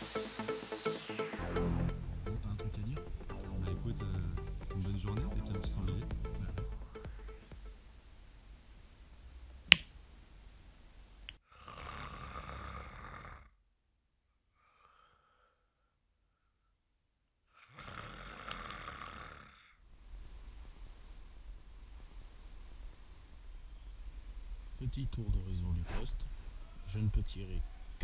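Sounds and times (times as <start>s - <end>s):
sharp click: 9.7s - 9.9s
man snoring: 11.5s - 13.6s, 17.6s - 19.8s.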